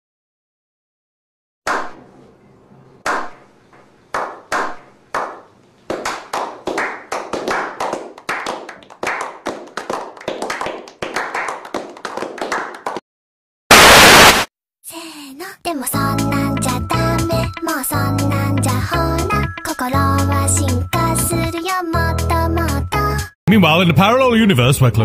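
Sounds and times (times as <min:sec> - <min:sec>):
people clapping: 0:04.1 - 0:13.0.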